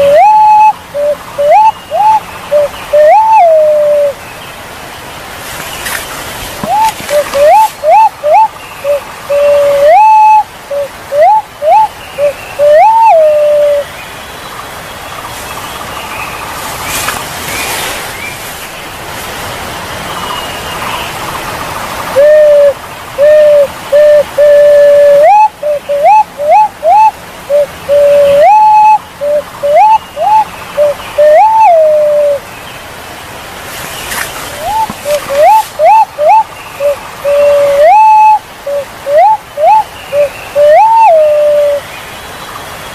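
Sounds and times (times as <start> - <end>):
pigeon whistling calls: 0.0 - 4.2, 6.6 - 13.9, 22.2 - 32.4, 34.0 - 41.8
steady hiss: 0.0 - 42.9.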